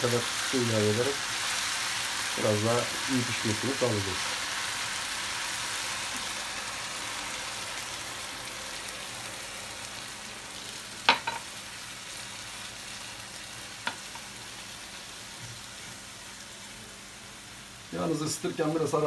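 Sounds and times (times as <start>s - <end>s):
greens sizzling in frying pan: 0.0s - 19.0s
spatula knocking on pan: 11.1s - 11.4s.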